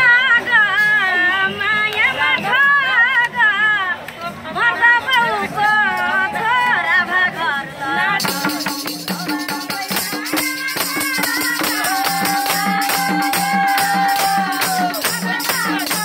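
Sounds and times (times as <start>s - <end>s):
person singing folk song: 0.0s - 16.0s
tambourine jingling: 8.2s - 16.0s.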